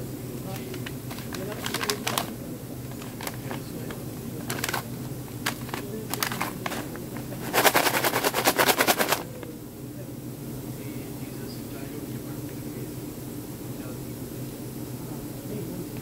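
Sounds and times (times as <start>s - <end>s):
candy rattling in shaken bag: 0.5s - 9.4s
paper bags crinkling: 0.5s - 9.4s.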